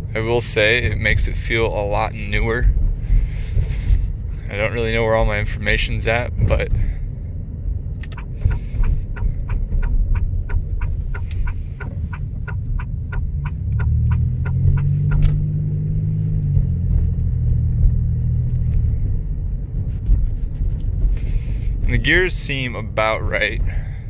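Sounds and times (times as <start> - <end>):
car engine drone: 0.0 - 24.0
turn signal clicking: 7.8 - 21.1.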